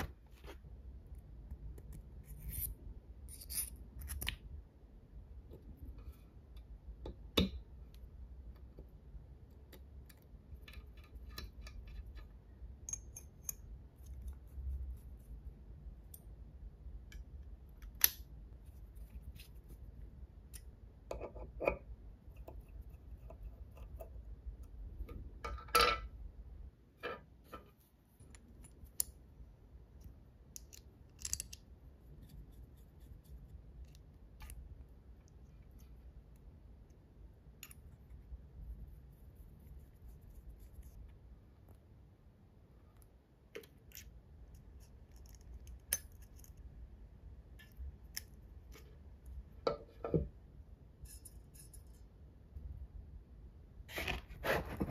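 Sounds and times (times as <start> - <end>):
small metal parts clicking: 30.5 - 31.6.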